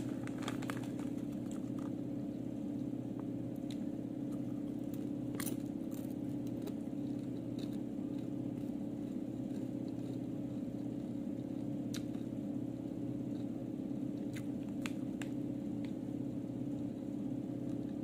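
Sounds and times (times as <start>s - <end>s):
person crunching chips: 0.0s - 2.0s
steady low hum: 0.0s - 18.0s.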